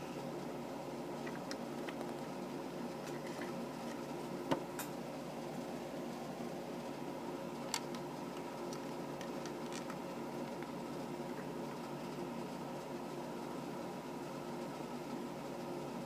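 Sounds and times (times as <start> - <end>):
steady hum: 0.0 - 16.0.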